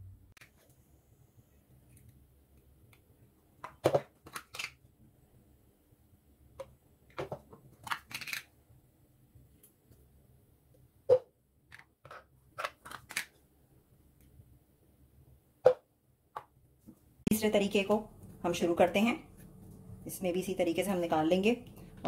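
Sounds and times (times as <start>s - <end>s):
plastic containers clicking and knocking: 3.6s - 4.7s, 6.6s - 8.4s.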